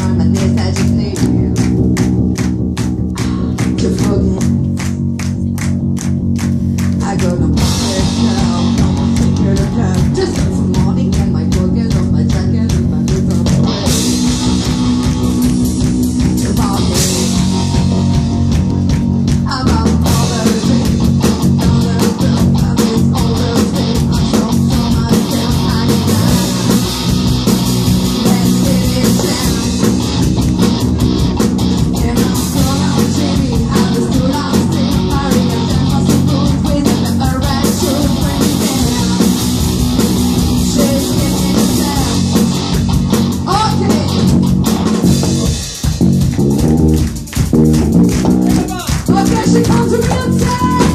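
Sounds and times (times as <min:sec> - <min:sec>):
woman singing: 0:00.0 - 0:01.8, 0:03.1 - 0:04.9, 0:07.0 - 0:14.2, 0:16.2 - 0:18.0, 0:19.4 - 0:26.8, 0:28.0 - 0:30.1, 0:31.8 - 0:39.7, 0:40.4 - 0:42.5, 0:43.4 - 0:44.3, 0:49.0 - 0:50.9
bass guitar: 0:00.0 - 0:50.9
distorted electric guitars: 0:00.0 - 0:50.9
drum kit: 0:00.0 - 0:50.9.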